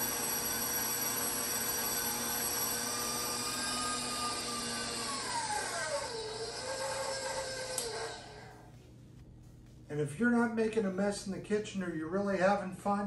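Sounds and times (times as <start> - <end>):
stand mixer motor whining: 0.0 - 8.7.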